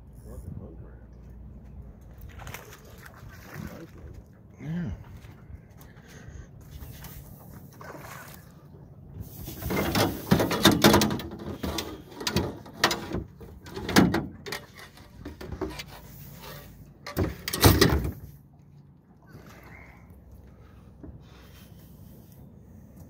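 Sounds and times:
knocks and clatter on metal hull: 0:09.7 - 0:15.8.

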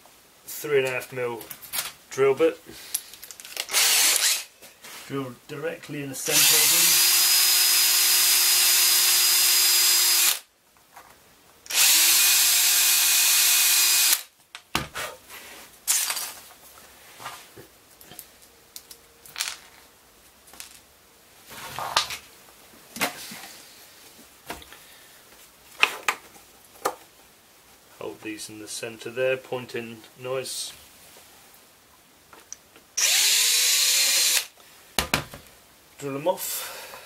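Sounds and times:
cordless drill drilling plastic: 0:03.7 - 0:04.5, 0:06.3 - 0:10.4, 0:11.7 - 0:14.3, 0:33.0 - 0:34.5.

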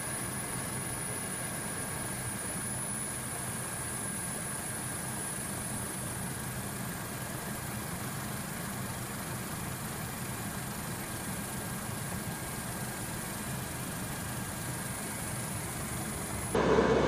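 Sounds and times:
aircraft engine drone: 0:00.0 - 0:17.0
faint high whine: 0:12.3 - 0:17.0.

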